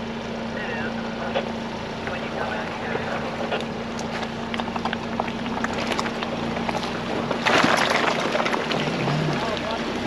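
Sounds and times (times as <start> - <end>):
low engine drone: 0.0 - 10.0
tyres knocking and crunching: 3.5 - 10.0.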